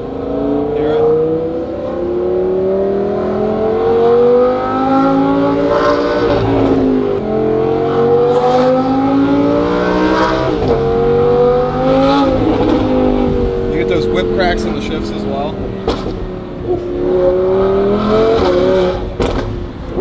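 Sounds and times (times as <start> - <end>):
car engine accelerating: 0.0 - 20.0
exhaust crack at gear shifts: 12.3 - 16.9, 18.3 - 20.0.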